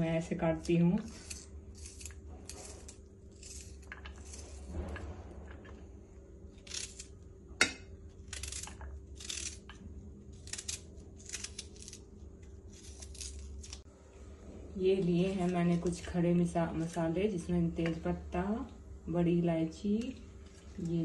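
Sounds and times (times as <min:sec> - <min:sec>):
knife slicing onion: 0:00.5 - 0:05.1, 0:06.6 - 0:13.9.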